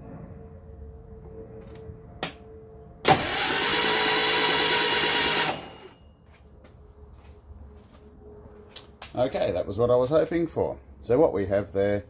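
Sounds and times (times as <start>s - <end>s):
starter motor cranking engine: 3.1s - 6.0s.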